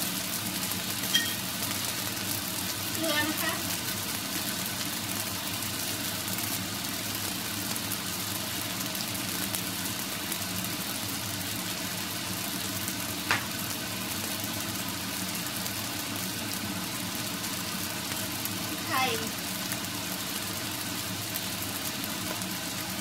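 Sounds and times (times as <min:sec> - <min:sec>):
kitchen hum: 0:00.0 - 0:23.0
light hiss of rice heating: 0:00.0 - 0:23.0
sharp tap: 0:13.3 - 0:13.5.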